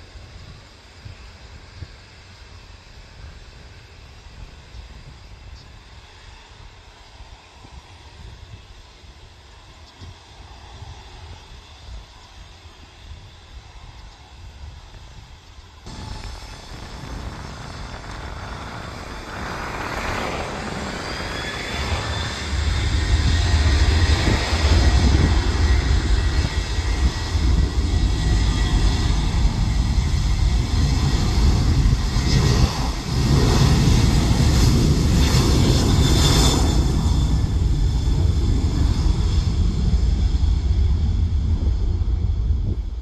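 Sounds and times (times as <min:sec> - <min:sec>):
jet engines spooling up: 0:15.4 - 0:43.0.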